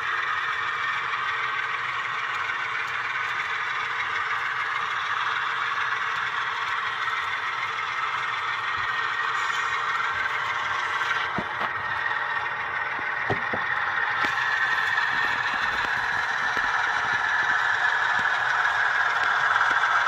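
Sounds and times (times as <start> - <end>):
model train cars rattling on track: 0.0 - 20.0.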